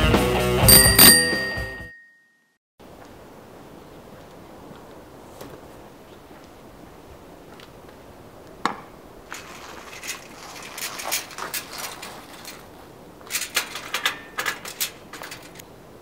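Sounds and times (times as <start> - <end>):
bicycle clicking and rattling: 9.3 - 15.6.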